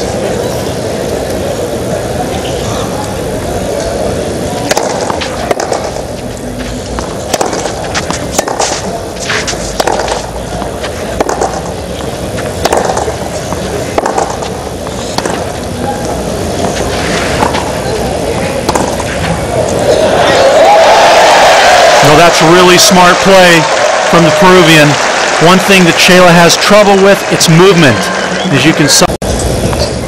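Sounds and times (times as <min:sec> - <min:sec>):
crowd and stadium noise: 0:00.0 - 0:30.0
racket striking tennis ball: 0:04.6 - 0:06.0, 0:06.6 - 0:19.9.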